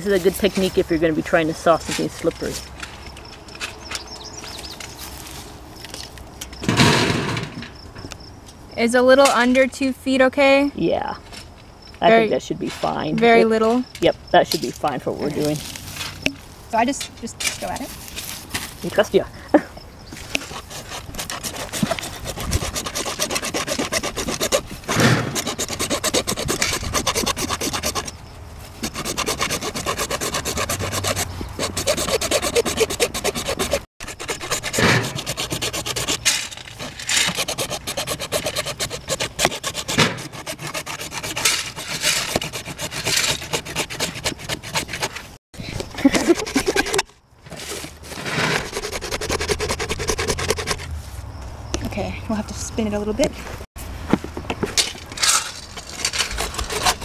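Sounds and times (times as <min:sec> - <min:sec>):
hacksaw cutting plastic pipe: 0:20.4 - 0:28.1, 0:28.8 - 0:45.3, 0:48.4 - 0:50.8, 0:55.9 - 0:57.0.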